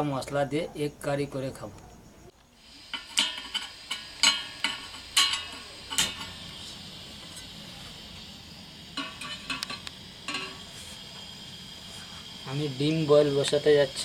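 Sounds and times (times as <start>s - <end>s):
burning gas hissing: 2.2s - 14.0s
metal pot clinking on burner: 2.9s - 7.6s, 8.9s - 11.3s
spark gas lighter clicking: 8.9s - 11.4s, 13.4s - 13.7s.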